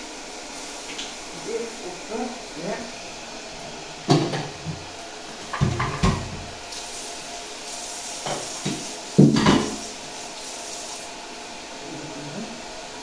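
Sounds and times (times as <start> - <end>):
water running from tap: 0.0 - 11.8
kitchenware clattering: 5.4 - 6.5, 8.2 - 9.8.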